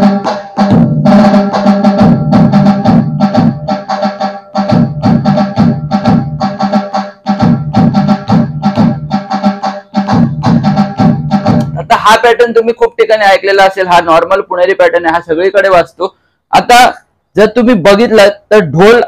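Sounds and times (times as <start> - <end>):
sharp tasha drum strokes: 0.0 - 12.1
deep dhol drum beat: 0.0 - 12.4.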